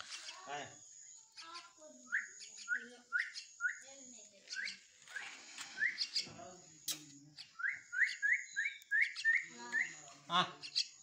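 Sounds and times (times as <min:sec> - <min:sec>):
fledgling begging chirps: 0:00.0 - 0:11.0.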